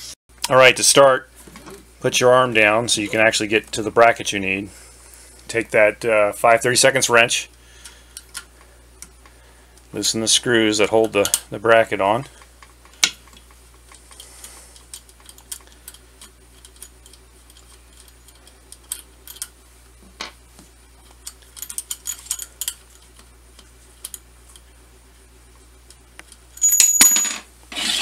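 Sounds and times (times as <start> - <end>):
ringing metallic clatter: 26.6 - 27.4.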